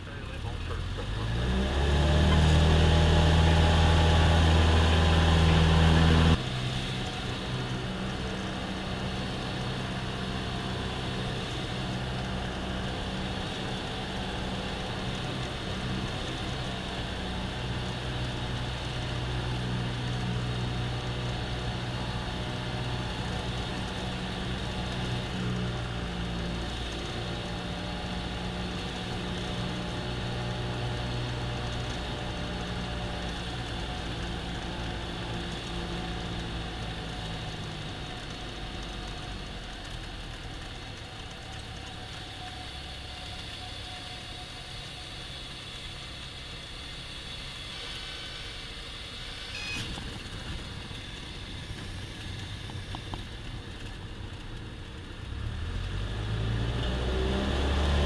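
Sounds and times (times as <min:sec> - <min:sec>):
small aircraft engine and propeller: 0:00.0 - 0:58.0.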